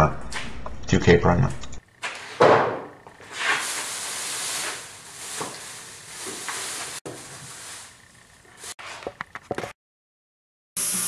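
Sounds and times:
plastic sheet rustling and crinkling: 3.2 - 9.0.

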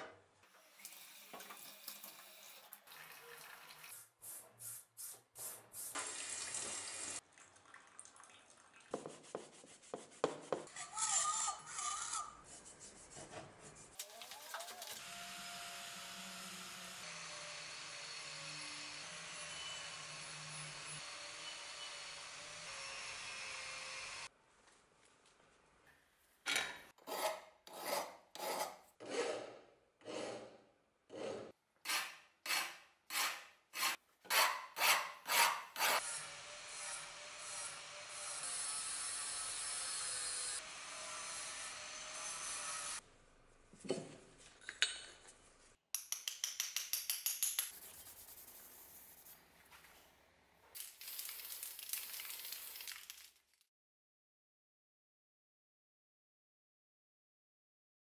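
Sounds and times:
rasping strokes on steel: 27.0 - 30.5, 31.1 - 36.0.

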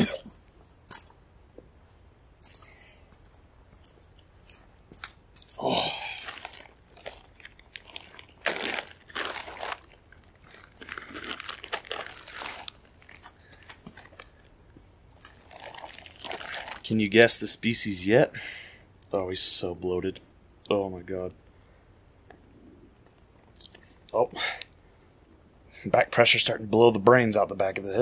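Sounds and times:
plastic bags crinkling: 4.8 - 17.3.

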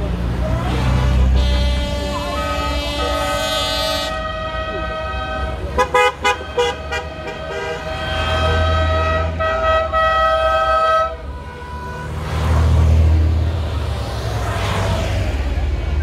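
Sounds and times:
low rumble of car engines: 0.0 - 16.0
car horns tooting: 0.3 - 12.6.

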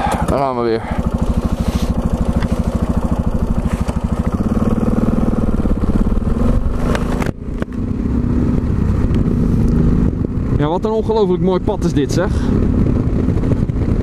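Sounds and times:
motorcycle engine thumping: 0.0 - 10.5.

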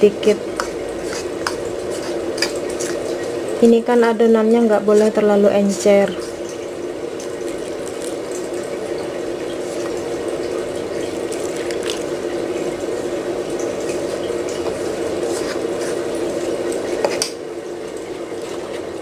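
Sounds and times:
metal spoon stirring batter: 0.0 - 3.2, 14.6 - 17.4.

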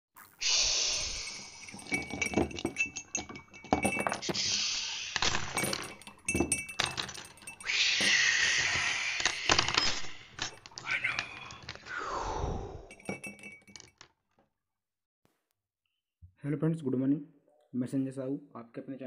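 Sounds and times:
sharp clinks: 0.5 - 11.9, 12.9 - 14.0.

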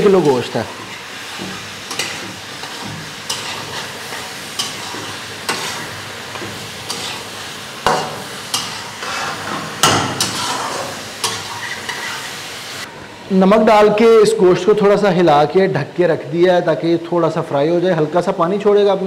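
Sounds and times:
meat sizzling in oil: 0.0 - 12.9
metal spatula scraping a pan: 0.1 - 12.4.

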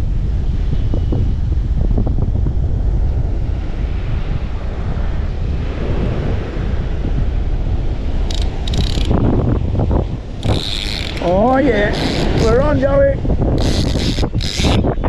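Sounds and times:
surf washing: 0.0 - 15.0
wind buffeting microphone: 0.0 - 15.0
fishing reel rattling: 8.3 - 9.2, 10.4 - 12.8, 13.6 - 14.9.

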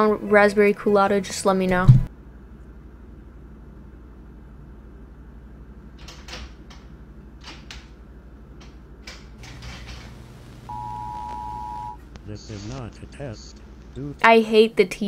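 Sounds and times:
closet doors clicking and rattling: 6.0 - 8.0, 8.6 - 10.2
two-tone alert signal: 10.7 - 12.0.

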